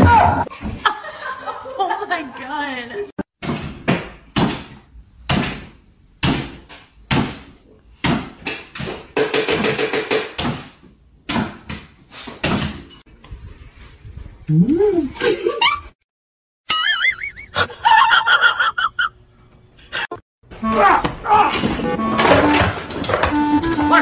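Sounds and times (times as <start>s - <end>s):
sharp knocks and thumps: 3.4s - 13.0s.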